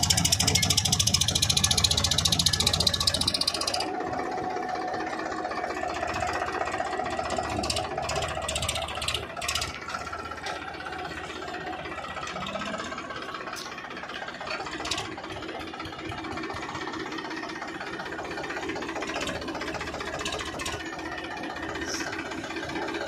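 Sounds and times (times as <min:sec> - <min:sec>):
tractor diesel engine knocking: 0:00.0 - 0:23.0
high-pitched rattles: 0:06.0 - 0:21.0.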